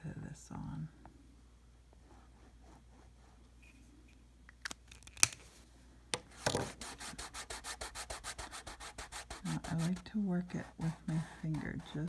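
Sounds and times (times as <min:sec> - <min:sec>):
crayon scratching on canvas: 0:06.6 - 0:12.0
fingertip rubbing canvas: 0:06.6 - 0:12.0.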